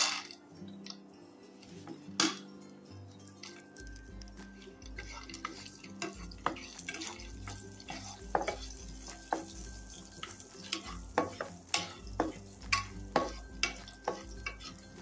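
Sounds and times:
nuts sizzling in a pan: 0.0s - 1.0s, 3.2s - 15.0s
spoon scraping a pan: 1.6s - 2.5s, 4.3s - 15.0s.

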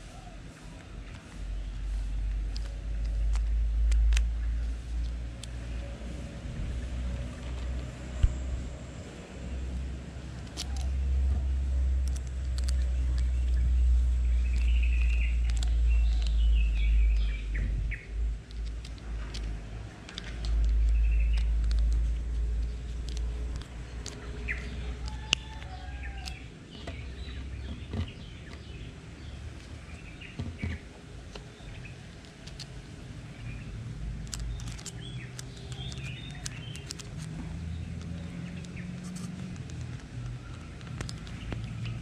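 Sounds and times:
birds chirping: 0.0s - 42.0s
low rumble: 0.9s - 30.8s
screwdriver and metal clicks: 34.2s - 37.3s.

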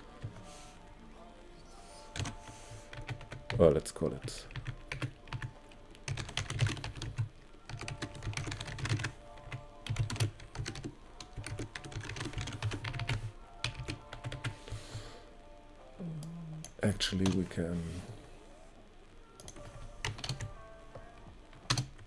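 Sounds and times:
typing on computer keyboard: 2.1s - 3.6s, 4.5s - 14.6s, 19.4s - 20.5s, 21.5s - 22.0s.

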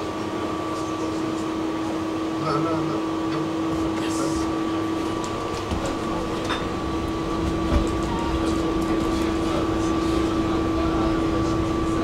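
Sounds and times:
tram hum with held tones: 0.0s - 12.0s
wheels rumbling on rail: 3.2s - 12.0s.

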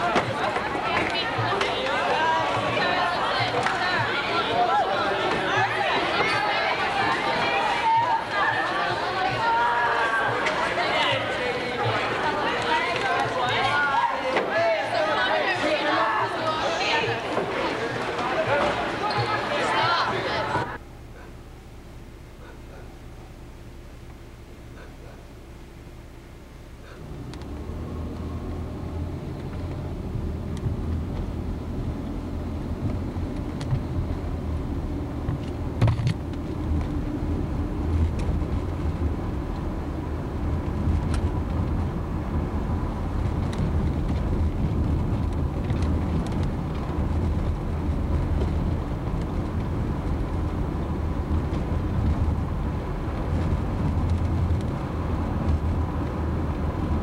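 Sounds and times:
car engine and road rumble: 17.0s - 57.0s.

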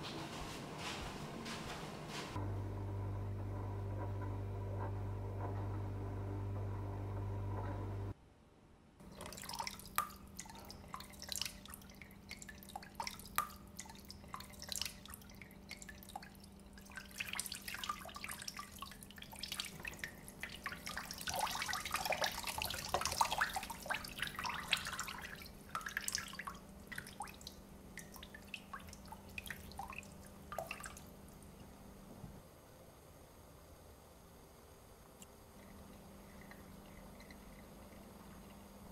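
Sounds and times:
steady low hum: 0.0s - 8.2s.

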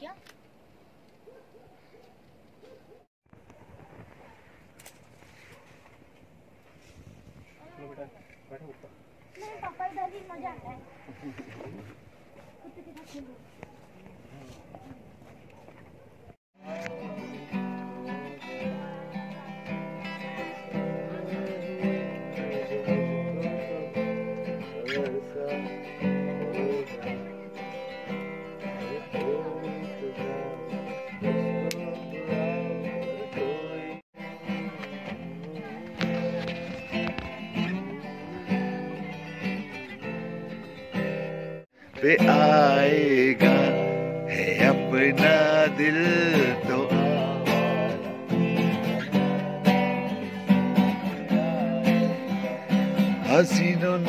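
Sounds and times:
acoustic guitar strumming: 16.6s - 54.0s
man singing: 16.6s - 54.0s.

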